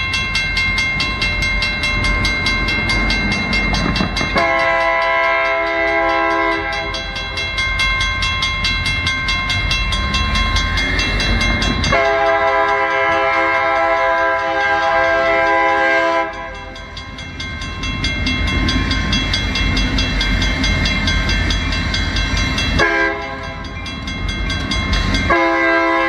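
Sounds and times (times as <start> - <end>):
crossing bell ringing: 0.0 - 26.0
locomotive rumble: 0.0 - 26.0
locomotive air horn: 4.3 - 7.0, 11.9 - 16.5, 22.8 - 23.5, 25.3 - 26.0.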